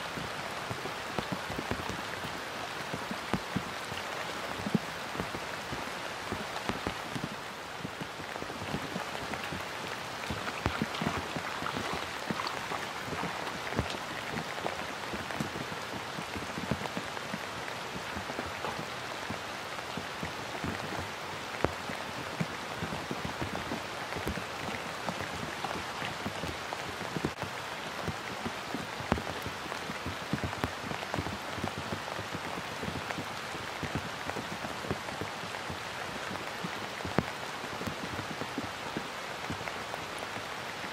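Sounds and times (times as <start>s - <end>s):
rain falling on water and grass: 0.0s - 40.9s.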